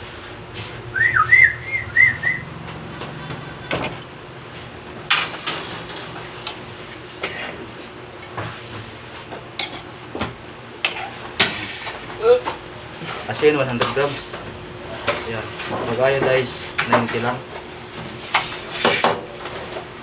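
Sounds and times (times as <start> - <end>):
steady hum: 0.0 - 20.0
high whistled chirps: 0.9 - 2.5.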